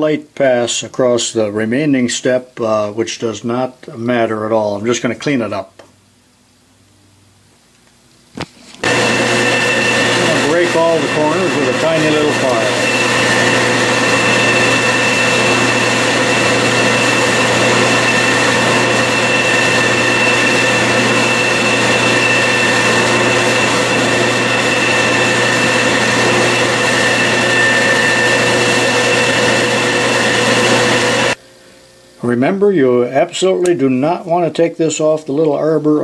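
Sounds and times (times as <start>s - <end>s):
file against spinning metal part: 8.8s - 31.4s
milling machine spindle whine: 8.8s - 31.4s.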